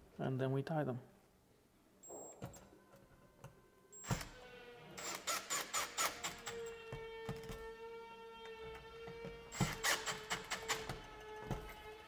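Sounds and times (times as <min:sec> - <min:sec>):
cordless drill spinning: 0:05.0 - 0:06.7.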